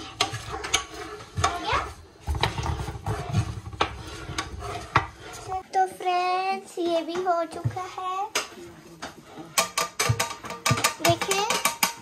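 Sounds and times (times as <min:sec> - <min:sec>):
metal spatula scraping frying pan: 0:00.0 - 0:05.7, 0:07.7 - 0:12.0
metal spoon clinking in pan: 0:09.6 - 0:12.0.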